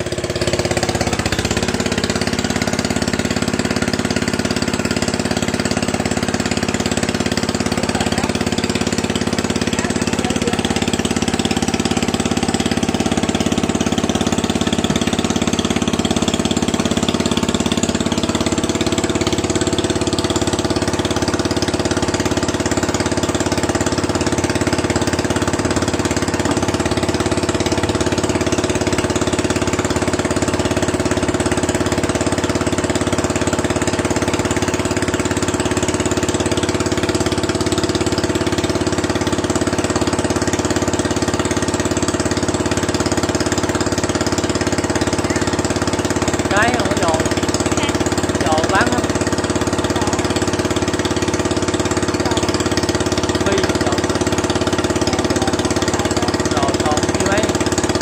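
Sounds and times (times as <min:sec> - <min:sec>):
water pump engine running: 0:00.0 - 0:58.0.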